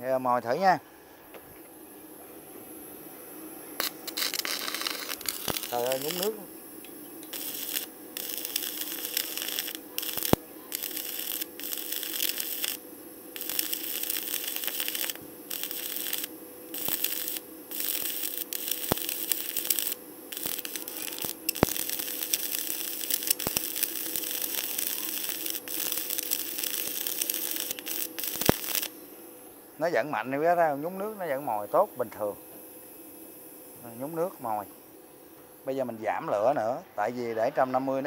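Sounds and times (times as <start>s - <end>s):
spatter pops: 3.8s - 12.8s, 13.4s - 28.9s
welding arc crackling: 3.8s - 29.0s.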